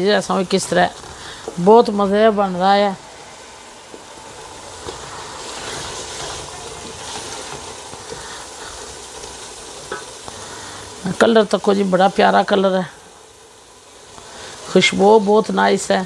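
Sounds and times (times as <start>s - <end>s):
masala sizzling in oil: 0.0s - 16.0s
wooden spoon stirring: 3.9s - 10.0s.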